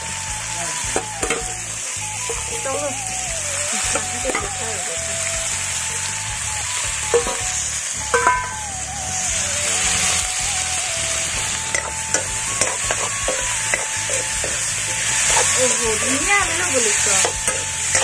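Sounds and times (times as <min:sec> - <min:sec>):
chicken sizzling in hot oil: 0:00.0 - 0:18.0
metal spatula knocking pan: 0:01.0 - 0:01.6, 0:04.0 - 0:04.7, 0:08.2 - 0:08.6, 0:11.7 - 0:15.6, 0:17.2 - 0:18.0.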